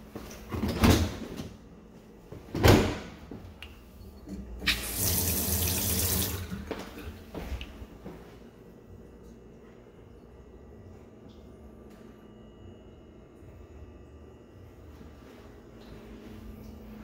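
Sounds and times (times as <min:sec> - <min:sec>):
water running into steel sink: 0:04.6 - 0:06.7.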